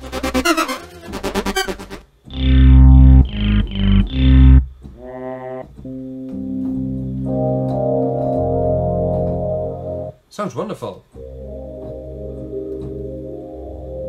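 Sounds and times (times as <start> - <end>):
fast sequenced synth pattern: 0.0 - 4.7
loud low synth stabs: 0.0 - 4.8
soft piano chords: 5.8 - 10.2, 11.2 - 14.0.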